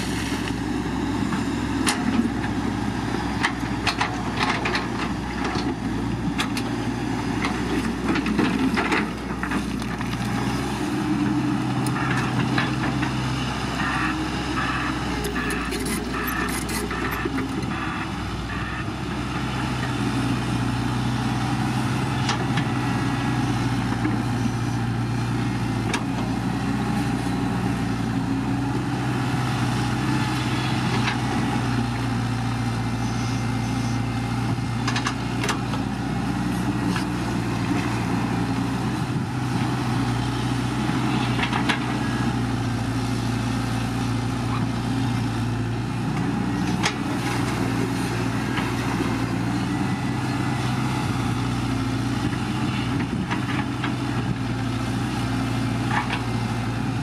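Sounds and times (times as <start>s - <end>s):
heavy diesel engine droning: 0.0s - 57.0s.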